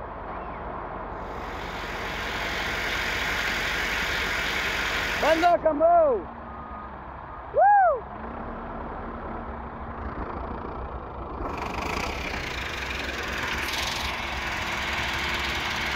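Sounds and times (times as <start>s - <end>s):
tractor diesel engine idling: 1.2s - 6.8s, 9.0s - 15.9s.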